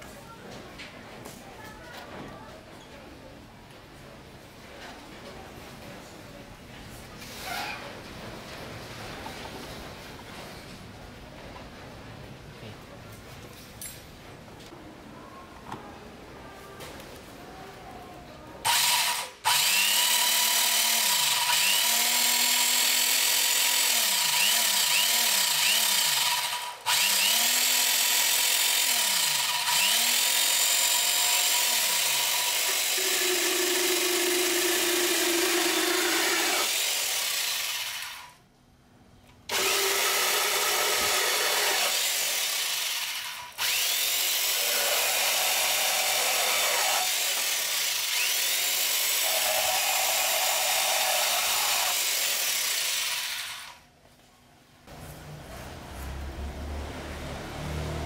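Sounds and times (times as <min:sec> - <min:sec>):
electric chainsaw sawing wood: 0:18.7 - 0:38.3, 0:39.5 - 0:53.8.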